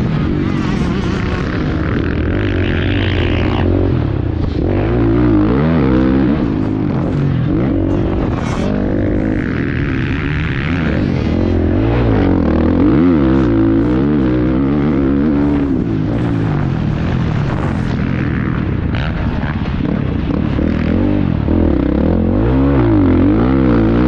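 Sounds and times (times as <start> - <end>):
motocross bike engine revving: 0.0 - 24.0.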